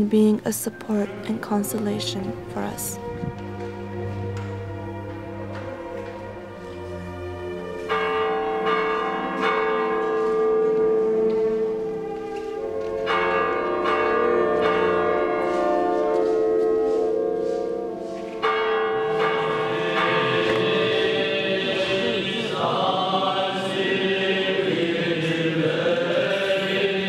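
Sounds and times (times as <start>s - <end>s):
church bell ringing: 0.0s - 27.0s.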